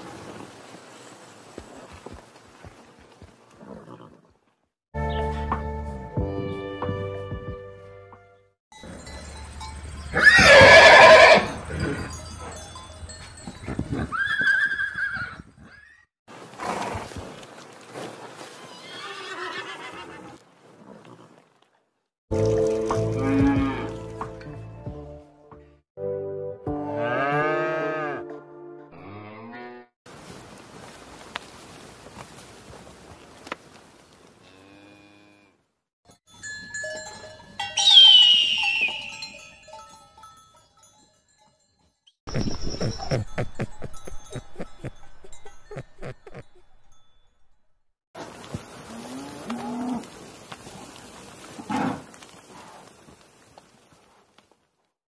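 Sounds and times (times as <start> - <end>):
horse whinnying: 10.1 - 12.0, 14.0 - 16.0, 18.6 - 21.4.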